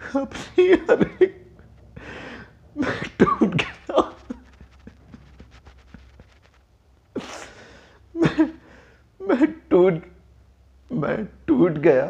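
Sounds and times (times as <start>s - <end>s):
man sobbing: 0.0s - 1.5s, 7.2s - 9.6s
catching breaths: 1.8s - 3.1s, 7.2s - 9.2s.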